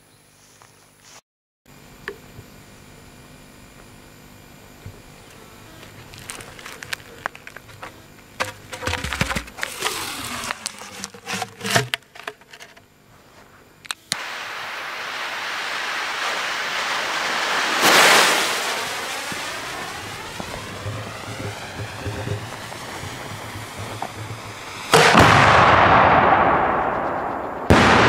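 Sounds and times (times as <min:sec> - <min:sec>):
fuse hissing: 0:05.2 - 0:12.4, 0:14.1 - 0:25.2
paper rustling: 0:05.9 - 0:12.8
knocks and scrapes: 0:06.3 - 0:12.8.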